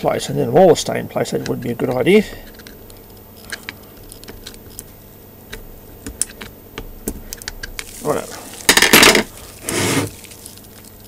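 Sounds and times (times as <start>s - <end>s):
short loud rushing hiss: 9.6s - 10.2s.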